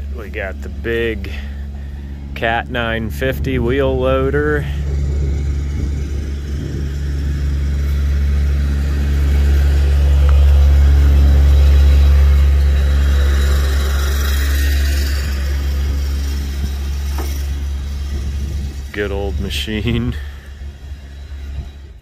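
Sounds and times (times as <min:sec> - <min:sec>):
diesel engine idling: 0:00.0 - 0:22.0.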